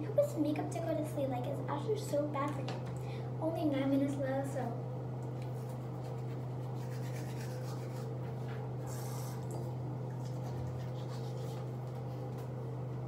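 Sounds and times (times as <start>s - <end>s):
toothbrush scrubbing teeth: 5.4s - 8.2s, 8.8s - 12.1s.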